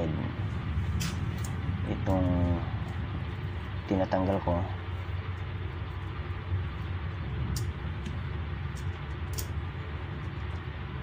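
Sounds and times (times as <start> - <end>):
low background rumble: 0.0 - 11.0.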